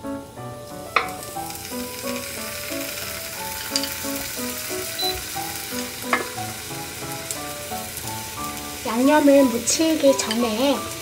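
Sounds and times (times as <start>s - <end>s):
roots sizzling in frying pan: 0.0s - 11.0s.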